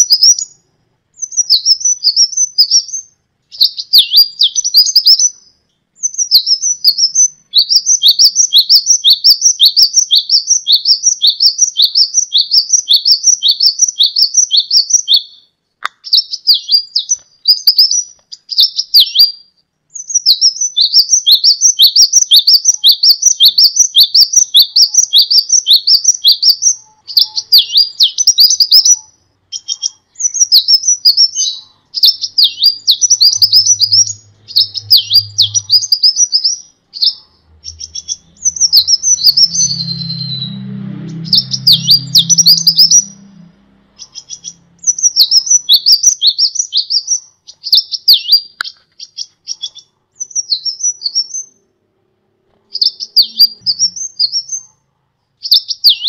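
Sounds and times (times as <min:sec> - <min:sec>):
sunbird twittering song: 0:00.0 - 0:51.7, 0:52.7 - 0:54.8, 0:55.4 - 0:56.0
faint low hum: 0:23.3 - 0:46.3.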